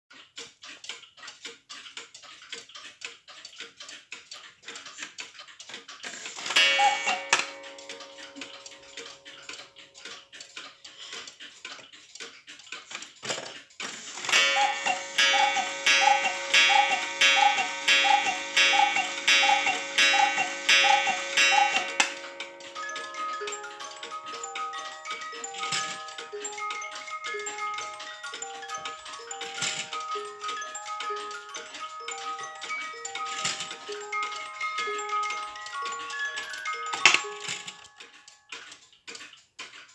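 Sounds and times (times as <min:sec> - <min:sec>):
clock ticking: 0:00.1 - 0:39.9
music box tune: 0:06.5 - 0:11.1, 0:14.2 - 0:38.8
two-note cuckoo calls: 0:06.6 - 0:08.6, 0:14.3 - 0:23.4.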